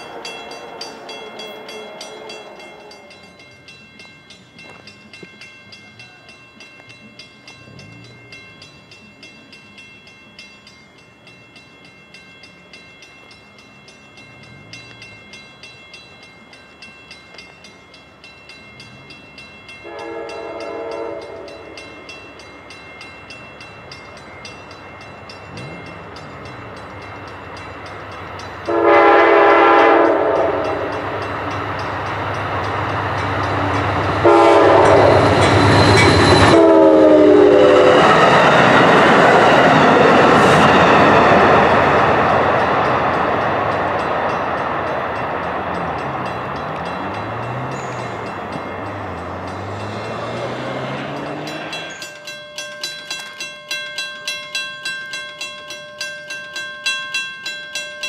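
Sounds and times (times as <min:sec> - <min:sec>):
train horn blasts: 0:00.0 - 0:03.3, 0:19.8 - 0:21.8, 0:28.6 - 0:31.0, 0:34.2 - 0:38.1
train rumbling past on rails: 0:00.0 - 0:58.0.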